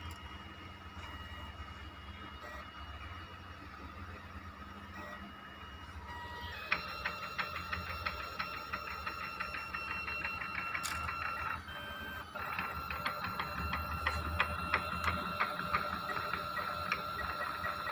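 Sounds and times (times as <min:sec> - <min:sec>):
stepper motors whining: 0:04.9 - 0:17.9.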